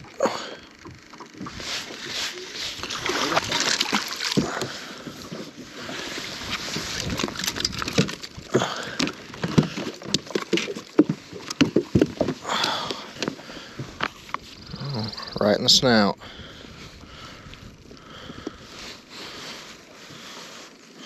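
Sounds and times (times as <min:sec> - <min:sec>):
water splashing and sloshing: 0:00.0 - 0:14.8
fish knocking in boat: 0:02.8 - 0:06.1, 0:06.8 - 0:14.2.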